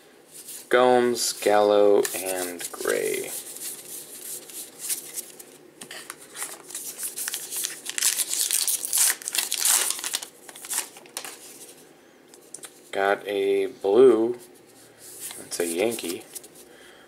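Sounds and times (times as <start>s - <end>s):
cards rustling: 1.4s - 11.8s, 15.2s - 16.7s
card pack wrapper crinkling and tearing: 6.3s - 11.4s.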